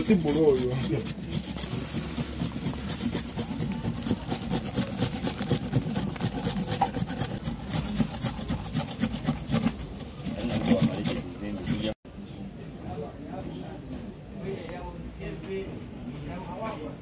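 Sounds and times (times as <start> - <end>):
carrot rasped on metal grater: 0.0 - 12.0.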